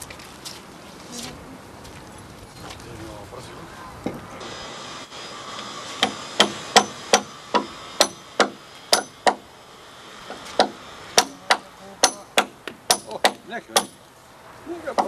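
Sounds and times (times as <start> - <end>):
hammer striking wood: 6.0 - 9.4, 10.3 - 14.0.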